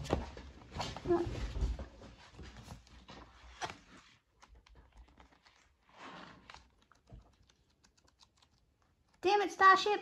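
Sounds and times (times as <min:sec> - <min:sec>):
pages rustling: 0:00.0 - 0:09.2
paper and cover ticks: 0:02.8 - 0:09.3.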